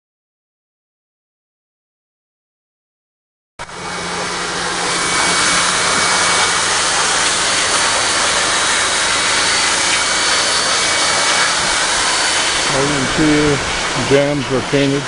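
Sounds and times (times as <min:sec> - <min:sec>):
low motor hum: 0:03.6 - 0:15.0
pressure washer spray hiss: 0:03.7 - 0:15.0.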